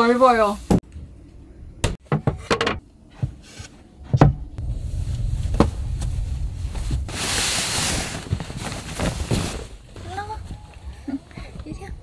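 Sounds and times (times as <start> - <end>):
low rumble: 4.6 - 8.3.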